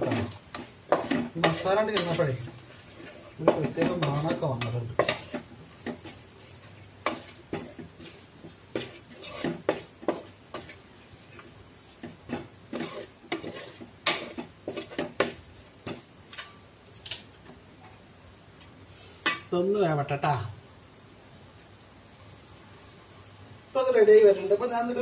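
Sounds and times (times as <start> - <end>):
spatula knocking pot: 0.0 - 6.2, 7.0 - 10.8, 12.0 - 16.5
spatula scraping steel pot: 0.0 - 10.8, 12.0 - 16.5.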